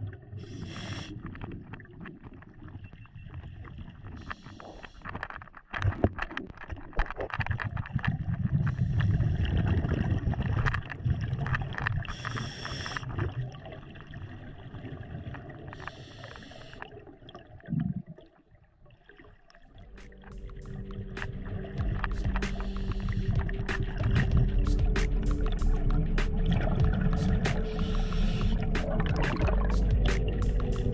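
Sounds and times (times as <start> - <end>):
exhaled bubbles gurgling: 0.0 - 5.2, 5.8 - 30.9
regulator inhale hiss: 0.4 - 1.3, 4.2 - 5.1, 12.1 - 13.1, 15.8 - 16.9, 27.3 - 28.9.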